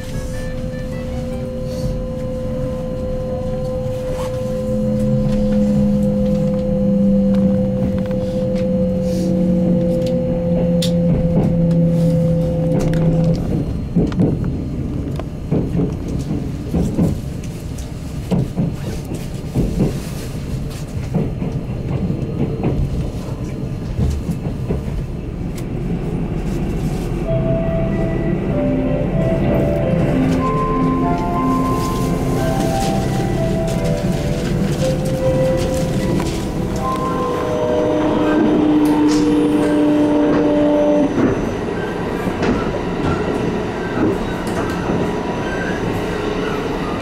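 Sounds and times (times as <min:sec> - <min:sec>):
train low rumble: 0:00.0 - 0:47.0
background music with held notes: 0:27.3 - 0:39.8.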